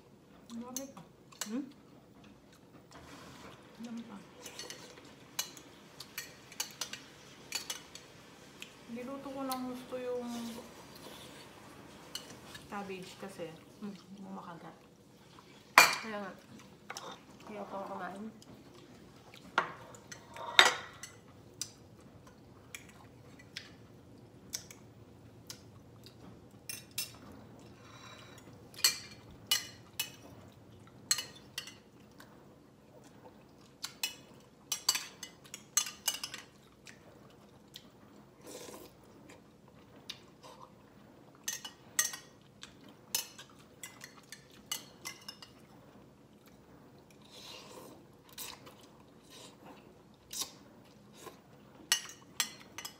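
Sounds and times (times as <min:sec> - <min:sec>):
chewing: 0:21.1 - 0:28.6, 0:30.1 - 0:44.9, 0:45.5 - 0:52.8.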